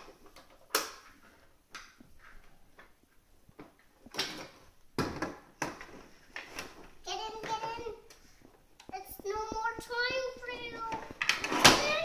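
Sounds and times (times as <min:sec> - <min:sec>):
plastic toys knocking together: 0:04.1 - 0:05.9, 0:10.9 - 0:12.0.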